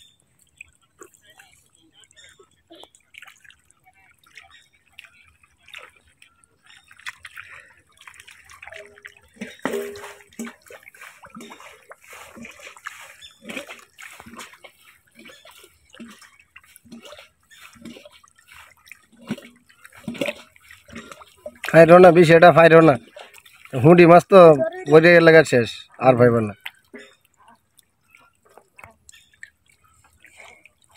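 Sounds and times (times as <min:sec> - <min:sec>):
fish flapping in a puddle: 0:03.0 - 0:22.3.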